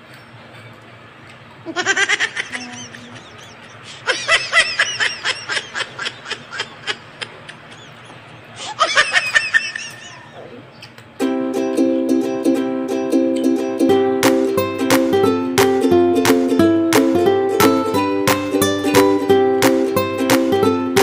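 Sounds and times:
high-pitched giggling: 1.7 - 10.6.

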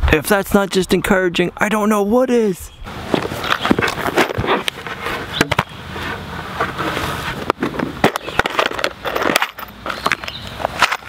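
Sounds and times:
wooden boards scraping: 3.0 - 11.0.

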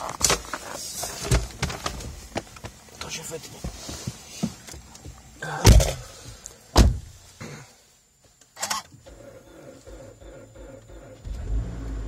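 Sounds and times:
loud thumps in car cabin: 6.7 - 7.2
engine starter cranking: 8.6 - 12.0.

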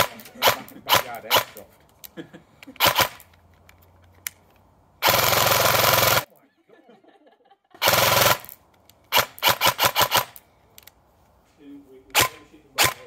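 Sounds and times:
airsoft gun firing: 0.0 - 1.6, 2.8 - 3.2, 5.0 - 6.3, 7.8 - 10.4, 12.1 - 13.0.

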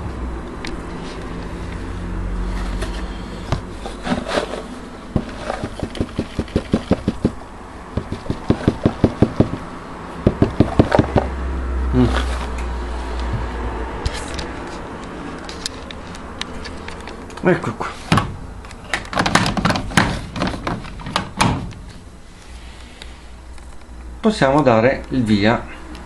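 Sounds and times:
cardboard box knocking: 5.1 - 9.6, 10.3 - 11.3.

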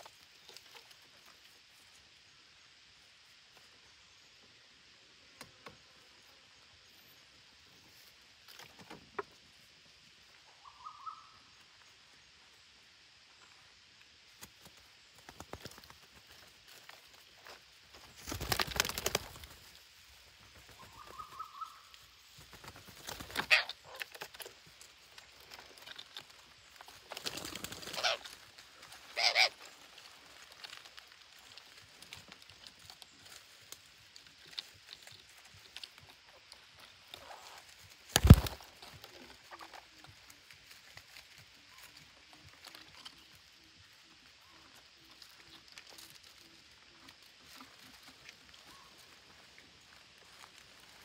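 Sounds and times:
bird wings flapping: 14.4 - 16.4, 18.0 - 19.8, 20.4 - 24.4, 26.8 - 28.4, 38.0 - 38.9.

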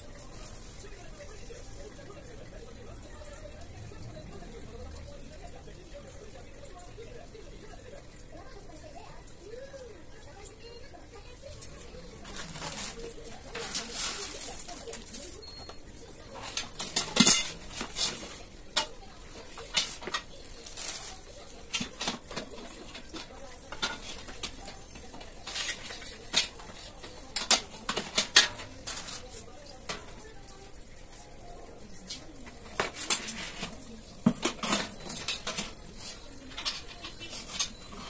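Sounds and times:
metal shelving parts clinking: 12.1 - 30.3, 32.4 - 38.0.

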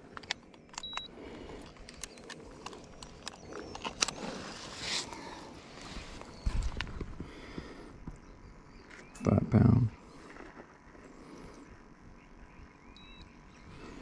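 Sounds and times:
light handling clicks and knocks: 0.0 - 4.2.

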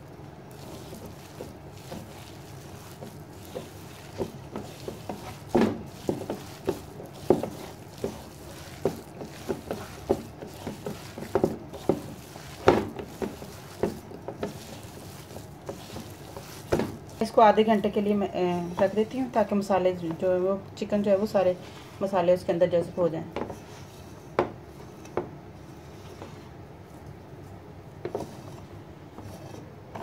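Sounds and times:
hand squishing meat in marinade: 0.0 - 21.0.

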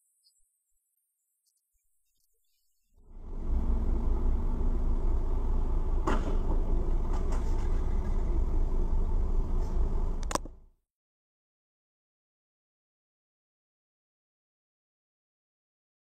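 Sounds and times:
car engine idle and road noise: 3.0 - 10.7
car striking cyclist: 5.9 - 8.5
short sharp click: 10.2 - 10.6.

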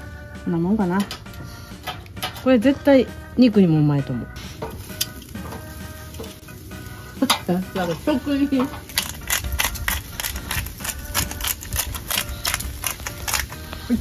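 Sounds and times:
meat grilling over charcoal: 1.3 - 14.0
fat crackling and popping: 3.7 - 14.0.

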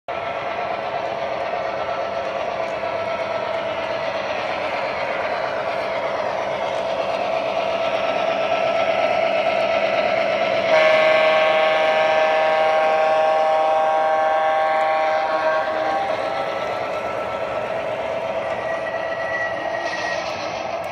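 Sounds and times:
diesel engine drone from loudspeaker: 10.6 - 17.3
multi-note air horn chord: 10.7 - 15.4.

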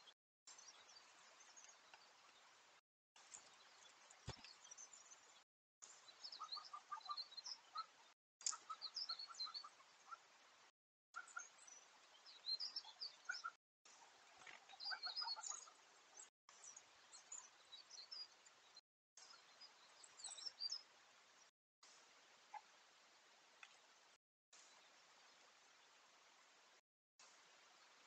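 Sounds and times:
birds chirping: 0.0 - 10.3, 11.2 - 20.9.

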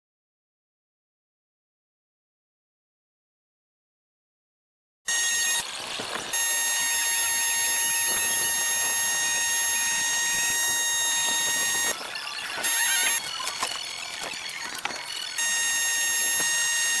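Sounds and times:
high-pitched buzzing tone: 5.1 - 17.0.

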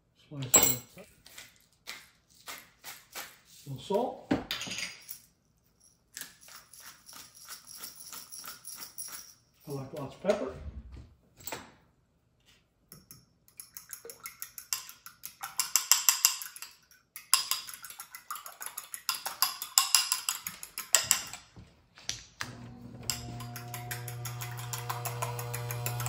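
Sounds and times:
fork beating eggs in a bowl: 1.2 - 3.7, 13.0 - 21.5, 23.2 - 26.0
vent fan humming: 22.4 - 26.0.

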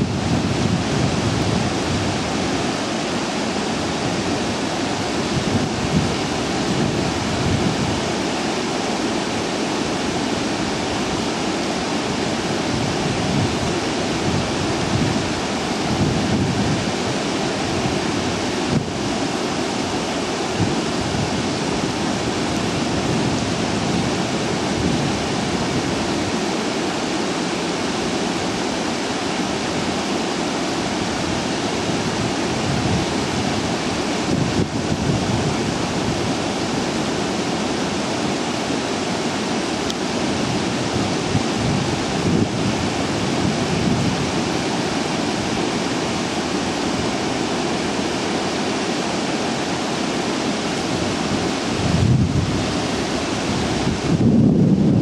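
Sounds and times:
wind buffeting microphone: 0.0 - 8.4, 12.1 - 26.7, 30.8 - 38.4, 39.9 - 47.5, 50.8 - 55.0
water rushing over weirs: 0.0 - 55.0.

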